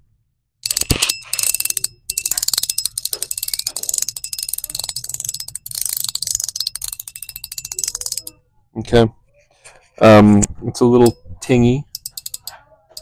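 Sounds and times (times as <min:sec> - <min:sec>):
fidget coin clicking: 0:00.6 - 0:08.4, 0:11.8 - 0:13.0.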